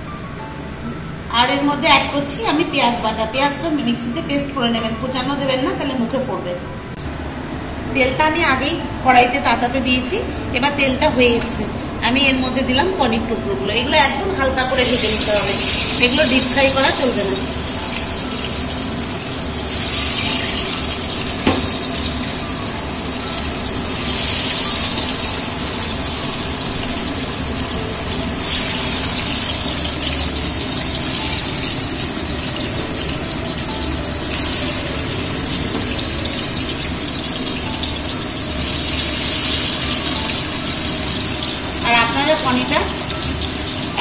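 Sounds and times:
cheese cubes sizzling in oil: 14.8 - 44.0
sharp knock: 21.4 - 21.8.

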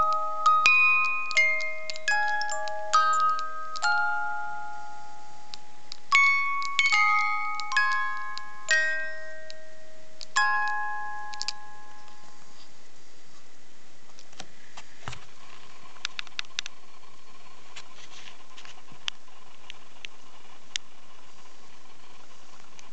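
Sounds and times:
music box notes: 0.0 - 12.6.

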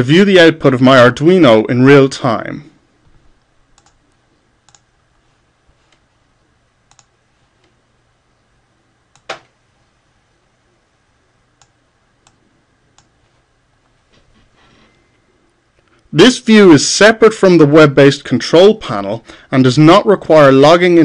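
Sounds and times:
faint low hum: 0.0 - 21.0
computer mouse clicks: 3.8 - 4.9, 6.9 - 7.8, 9.1 - 9.5, 11.6 - 13.2.

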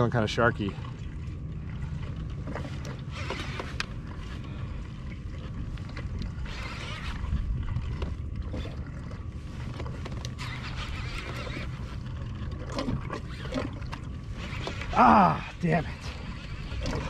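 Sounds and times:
fishing reel cranking: 6.2 - 8.8, 10.1 - 12.1.

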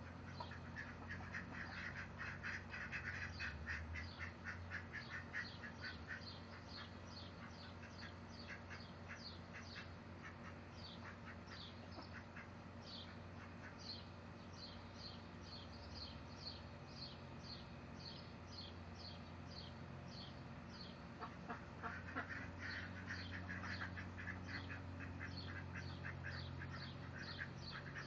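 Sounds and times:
ducks quacking: 0.0 - 14.0, 21.2 - 28.0
low steady hum: 0.0 - 28.0.

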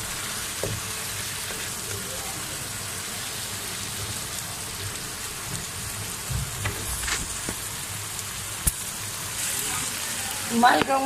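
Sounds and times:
onions sizzling in oil: 0.0 - 11.0.

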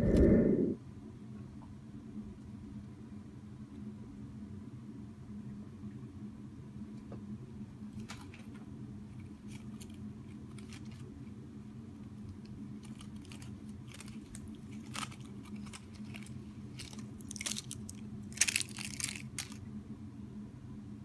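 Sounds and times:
low hum: 0.0 - 0.8
cat chewing plastic wrapper: 9.2 - 11.1, 12.3 - 19.6.

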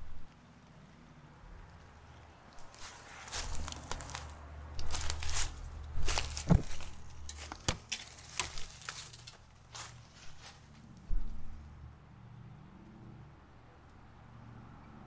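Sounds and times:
footsteps crunching dry leaves: 2.6 - 11.4.

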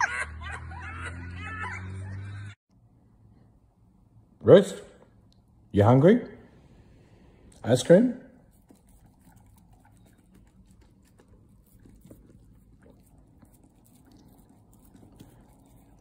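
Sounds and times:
dog licking a spoon: 8.5 - 16.0.

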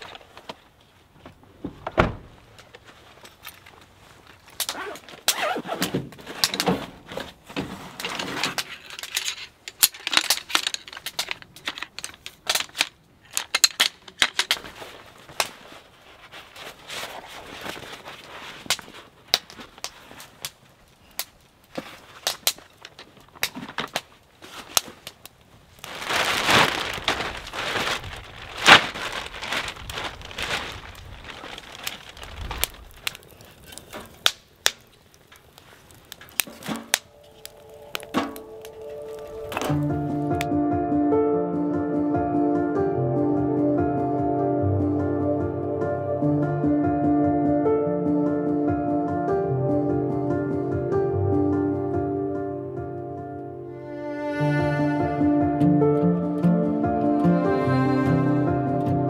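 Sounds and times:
fire crackling: 0.0 - 40.7
fabric pack rustling: 2.6 - 8.9, 14.5 - 20.4, 25.7 - 33.9, 35.6 - 40.4
wood laid into fire: 31.8 - 40.5.

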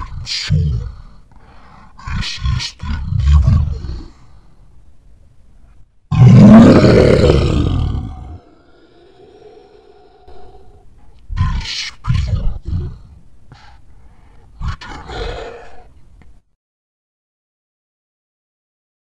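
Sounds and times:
deep slowed voice with echo: 7.0 - 13.2.

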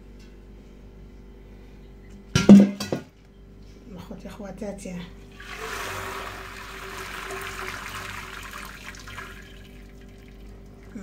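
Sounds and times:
water pouring into metal pot: 5.4 - 11.0.

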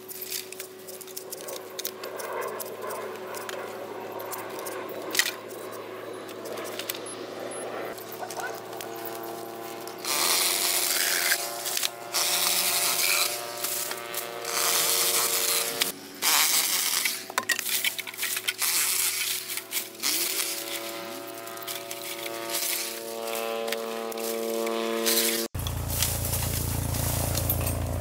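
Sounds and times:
battery saw motor humming: 0.0 - 28.0
saw rasping through bamboo: 8.0 - 27.3.

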